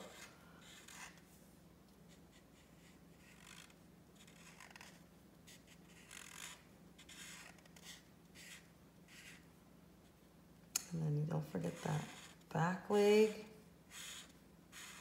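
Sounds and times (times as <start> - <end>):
marker scratching on paper: 0.0 - 1.3, 2.1 - 9.5, 11.6 - 12.5, 13.9 - 15.0.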